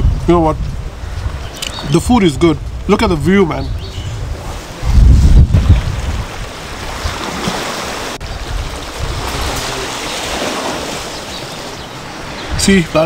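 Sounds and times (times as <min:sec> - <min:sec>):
wind: 0:00.0 - 0:13.0
sea water washing: 0:04.2 - 0:13.0.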